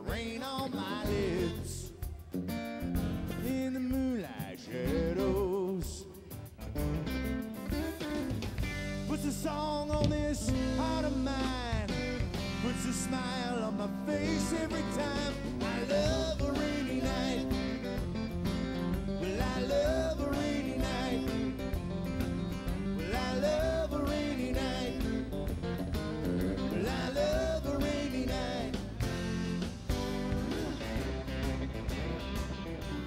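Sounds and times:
man singing: 0.0s - 2.1s, 3.3s - 6.4s, 9.0s - 18.0s, 19.1s - 21.8s, 23.0s - 25.4s, 26.6s - 29.1s
acoustic guitar: 0.0s - 33.0s
live country band music: 0.0s - 33.0s.

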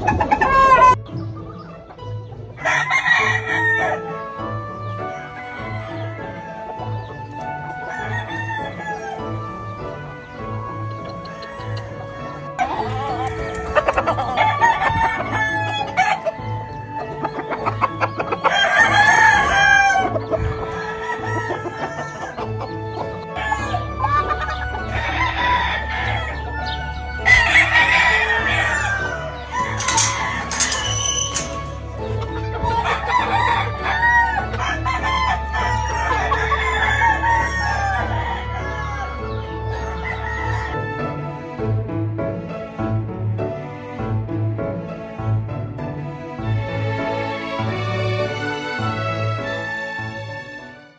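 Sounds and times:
chickens clucking: 0.0s - 41.3s
light background music: 0.0s - 50.9s
rooster crowing: 2.6s - 4.2s, 7.8s - 9.4s, 12.6s - 16.4s, 18.3s - 22.4s, 23.3s - 31.8s, 32.6s - 41.3s.

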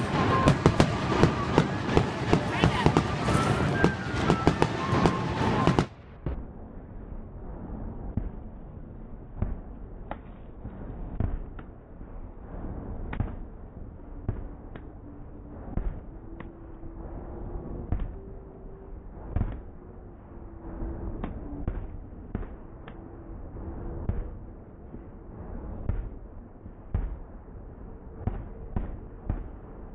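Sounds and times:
fireworks booming: 0.0s - 7.0s, 9.3s - 16.3s, 17.6s - 18.4s, 19.0s - 19.8s, 23.9s - 27.4s
low rumble of echo: 0.0s - 29.9s.

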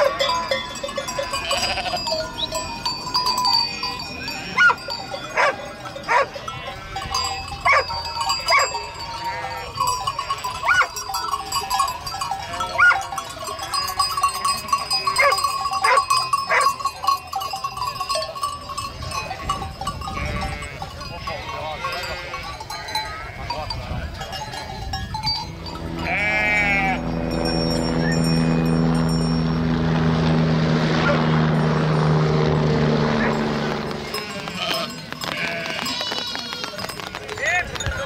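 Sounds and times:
steady ringing tone: 0.0s - 35.6s
sheep bleating: 1.3s - 2.2s, 25.9s - 27.2s, 34.0s - 36.7s.

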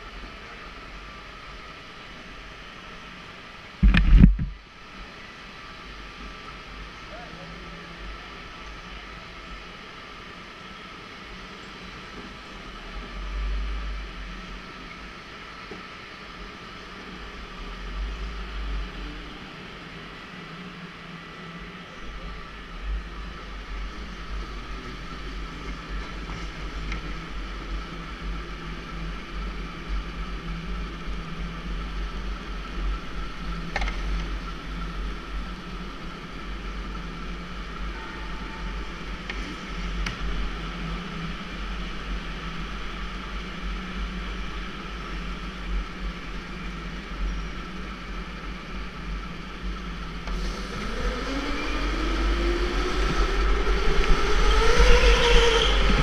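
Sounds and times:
chassis and tyres rumbling: 22.3s - 56.0s
electric motor whine: 50.2s - 56.0s.

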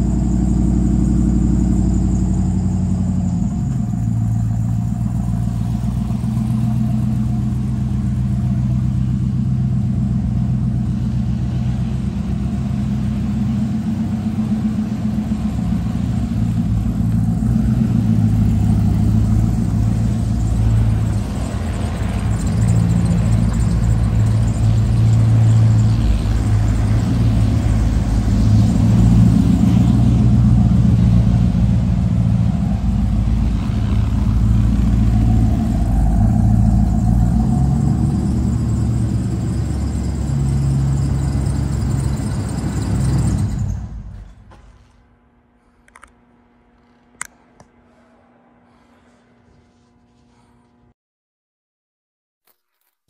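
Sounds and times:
pickup truck engine running: 0.0s - 47.8s.

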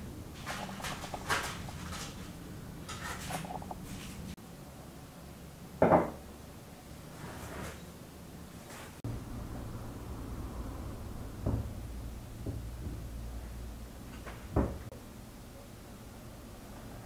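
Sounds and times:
baking parchment crinkling: 0.4s - 4.4s.

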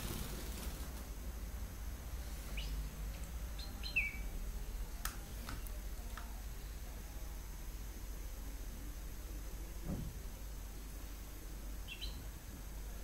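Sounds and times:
steady low hum: 0.0s - 13.0s
goldfinch chirping: 3.6s - 4.3s, 11.9s - 12.2s.

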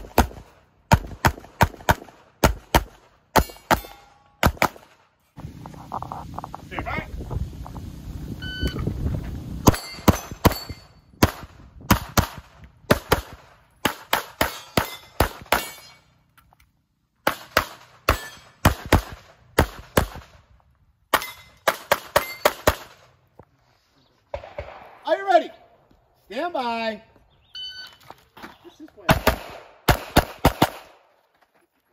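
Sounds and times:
pistol shots: 0.0s - 5.0s, 9.7s - 16.0s, 17.2s - 20.4s, 24.3s - 25.0s, 29.1s - 31.1s
shot timer beep: 8.4s - 8.8s.

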